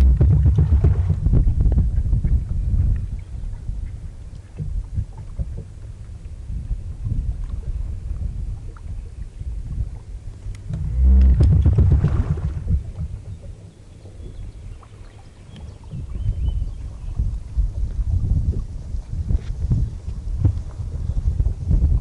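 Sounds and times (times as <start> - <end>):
boat engine rumble: 0.0 - 22.0
wind on microphone: 0.0 - 22.0
faint clicks: 10.5 - 11.6.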